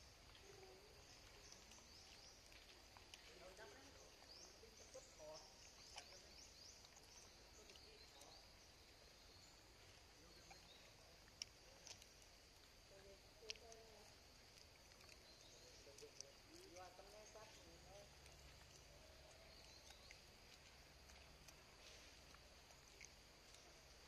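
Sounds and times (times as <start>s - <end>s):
faint distant voices: 0.0s - 24.0s
bird chirps: 15.2s - 20.6s.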